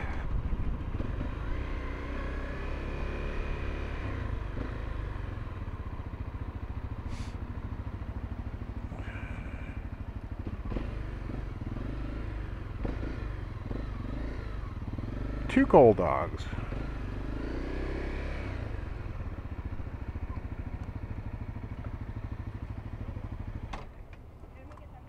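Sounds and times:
motorbike engine idling: 0:00.0 - 0:02.8, 0:03.4 - 0:25.0.

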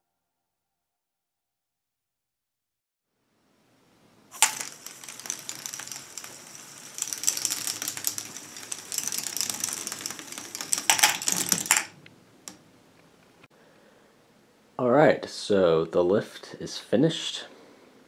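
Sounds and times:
plastic parts and balls rattling: 0:04.3 - 0:12.6.

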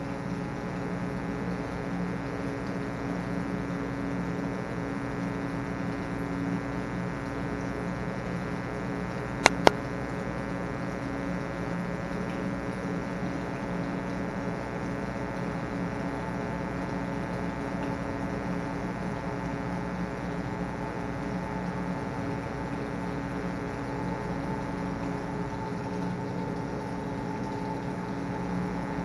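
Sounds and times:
steady machine hum: 0:00.0 - 0:29.0
sharp clicks: 0:09.4 - 0:09.8.

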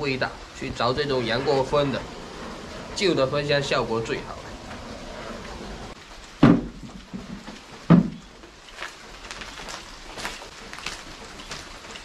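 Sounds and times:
dull wooden knocks: 0:06.4 - 0:08.5.

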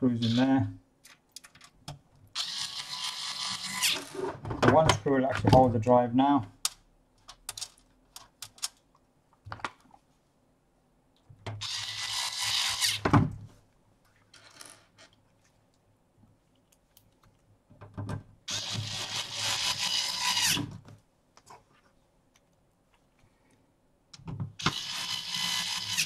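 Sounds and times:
electric screwdriver whirring: 0:02.4 - 0:04.0, 0:18.5 - 0:20.6, 0:24.6 - 0:26.0.

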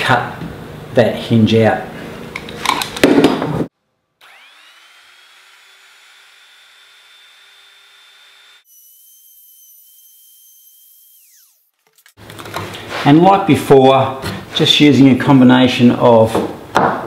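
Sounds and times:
electric router whining: 0:04.2 - 0:12.2.

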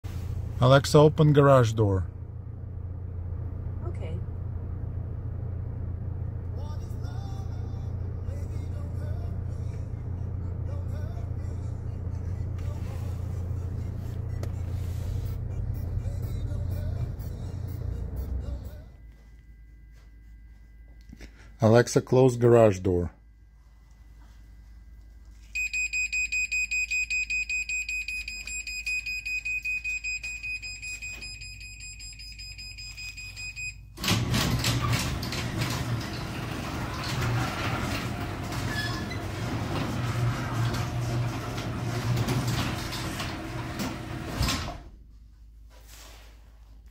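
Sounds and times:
garage door motor running: 0:02.1 - 0:19.0, 0:33.9 - 0:45.0.

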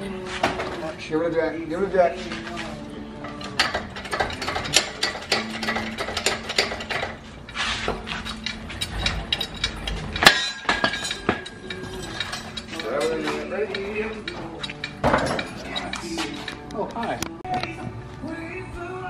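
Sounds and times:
metal clinks: 0:03.2 - 0:07.2, 0:08.1 - 0:16.7.

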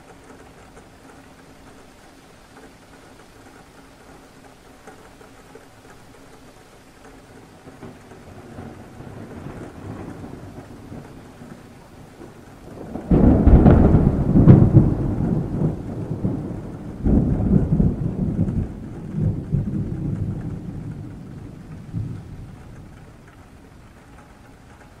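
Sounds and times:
rain: 0:00.0 - 0:25.0
thunder rumbling and clapping: 0:07.7 - 0:25.0.

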